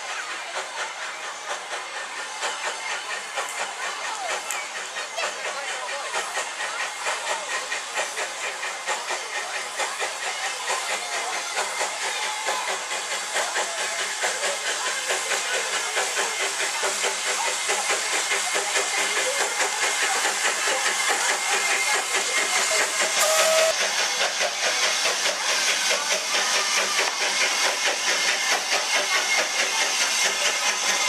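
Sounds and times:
hiss of steam: 0.0 - 31.0
steam locomotive chuffing: 0.0 - 31.0.

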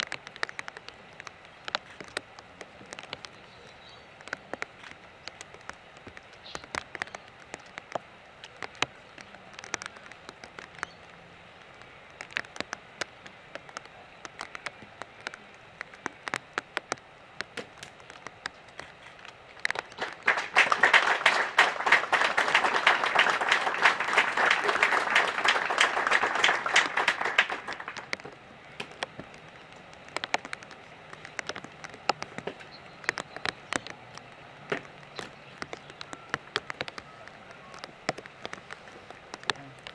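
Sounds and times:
scattered clicks: 0.0 - 20.4, 21.3 - 39.9
audience applause: 19.8 - 28.2.

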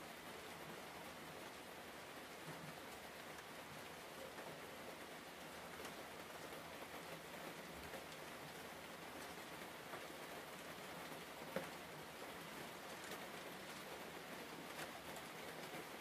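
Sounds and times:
faint steady hiss: 0.0 - 16.0
faint ticks: 12.9 - 14.0.

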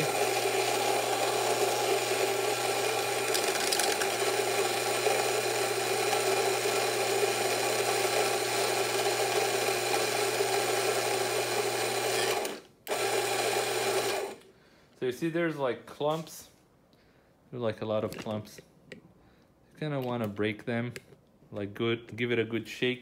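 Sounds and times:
coffee grinder grinding beans: 0.0 - 14.4.

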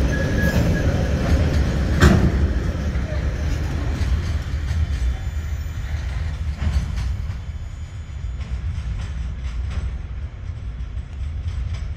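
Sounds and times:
freight train rumbling: 0.0 - 11.9
wheels clacking on rails: 0.0 - 11.9.

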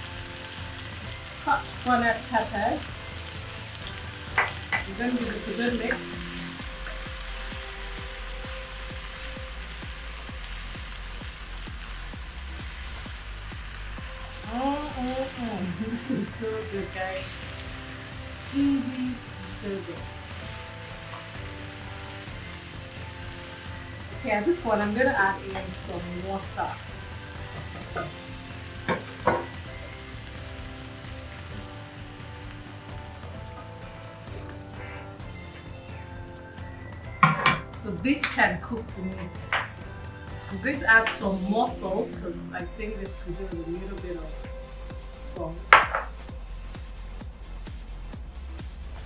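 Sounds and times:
background music with steady beat: 0.0 - 49.0
food sizzling in a pan: 0.0 - 49.0
sharp knocks: 45.8 - 46.1.

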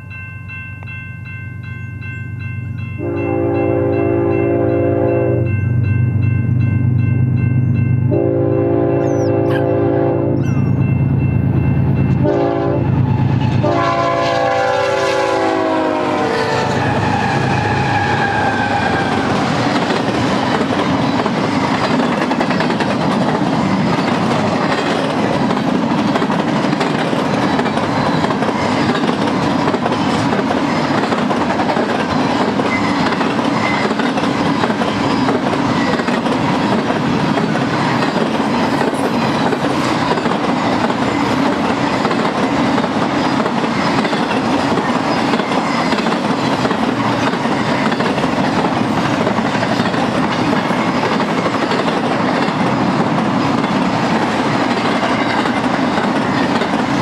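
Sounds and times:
diesel locomotive engine rumble: 2.0 - 57.0
train air horn blasts: 3.0 - 5.5, 8.1 - 10.8, 12.2 - 19.3
train wheels clattering on rails: 16.7 - 57.0.

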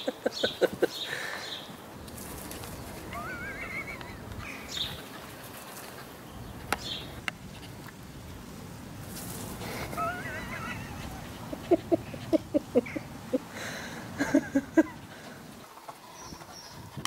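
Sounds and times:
high wavering animal whine: 3.0 - 5.0.

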